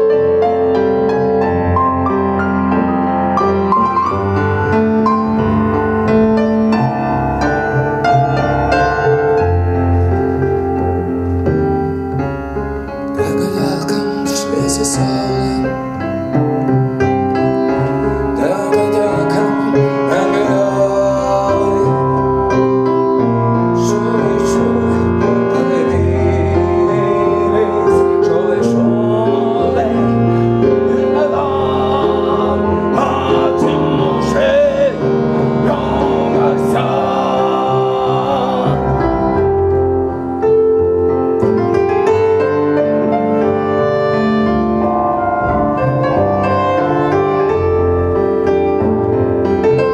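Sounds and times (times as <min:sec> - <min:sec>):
piano: 0:00.0 - 0:49.9
wavering melody line: 0:40.5 - 0:48.6.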